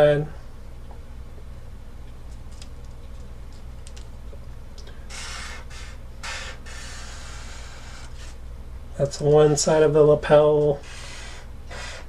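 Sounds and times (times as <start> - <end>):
low steady hum: 0.0 - 12.0
marker drawing on paper: 5.2 - 8.4, 10.8 - 12.0.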